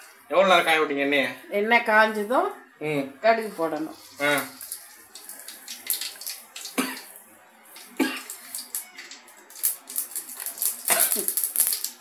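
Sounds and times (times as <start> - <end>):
mustard seeds crackling in hot oil: 3.7 - 12.0.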